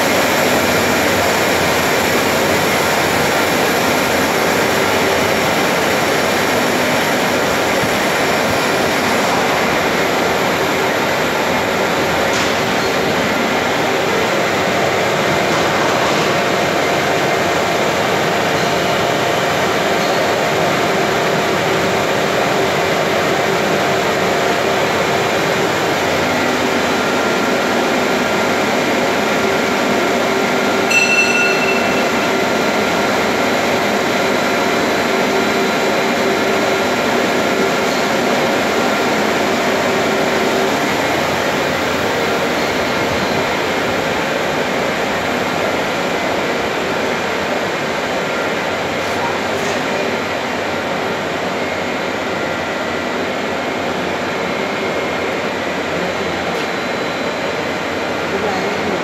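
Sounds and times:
machinery drone: 0.0s - 59.0s
short high beep: 30.9s - 32.6s.

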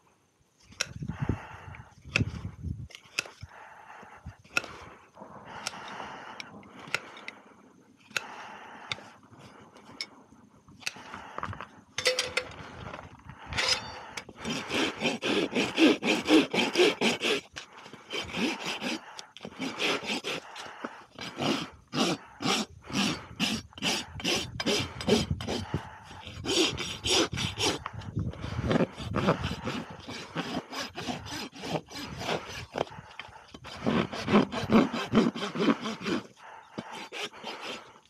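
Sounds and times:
rasp filing a hoof: 2.0s - 3.6s, 4.4s - 7.4s, 13.4s - 38.0s
tool scraping: 10.8s - 38.0s.

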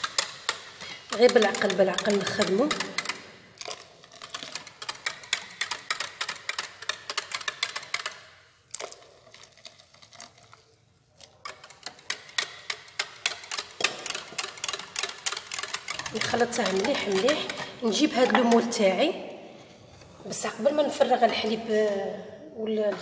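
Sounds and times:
whisk clicking against glass bowl: 0.0s - 8.2s, 11.3s - 18.6s.

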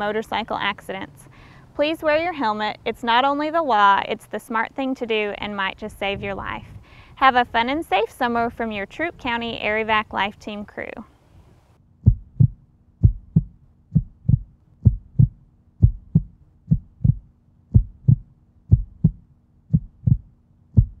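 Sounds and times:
heartbeat lub-dub: 12.0s - 21.0s.

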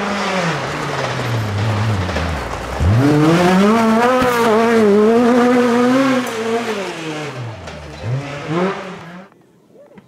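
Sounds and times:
buggy engine revving: 0.0s - 9.4s.

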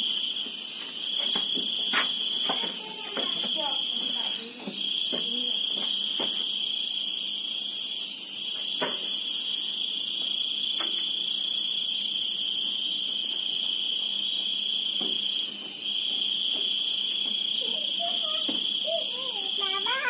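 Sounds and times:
night insects trilling: 0.0s - 20.0s.

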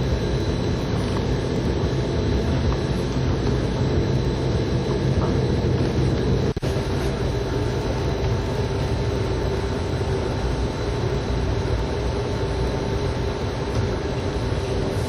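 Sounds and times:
faint constant whine: 0.0s - 15.0s
train rumble: 0.0s - 15.0s.

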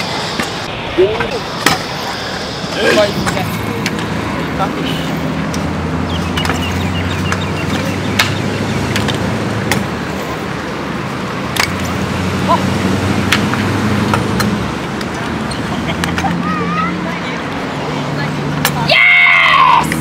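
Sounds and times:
scooter wheels rumbling on concrete: 0.0s - 18.5s
scooter clicking and knocking on concrete: 5.5s - 9.9s.

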